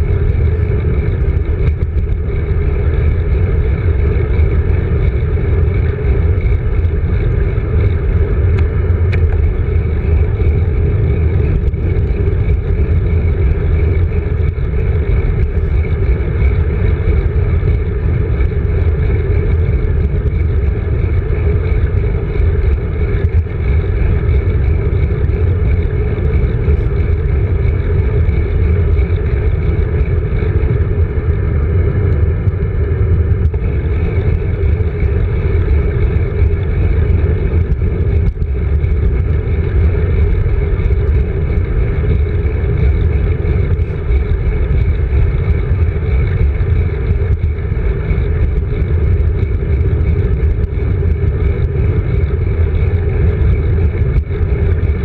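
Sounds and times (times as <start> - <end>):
wind and road rumble: 0.0 - 55.0.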